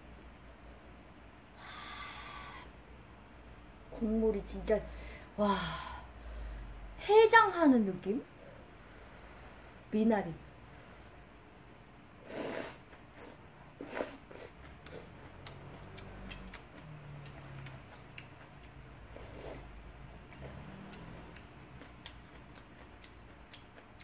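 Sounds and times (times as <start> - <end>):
chewing and utensil clicks: 14.6 - 18.8, 20.2 - 24.0.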